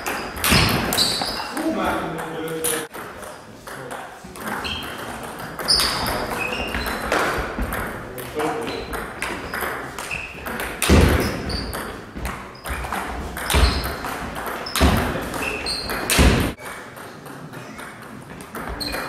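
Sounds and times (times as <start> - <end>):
loud thumps: 10.8 - 11.7, 13.4 - 16.6.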